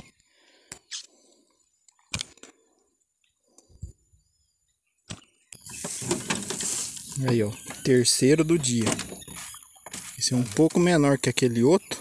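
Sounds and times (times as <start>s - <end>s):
fish flapping against dry grass: 5.7s - 7.2s.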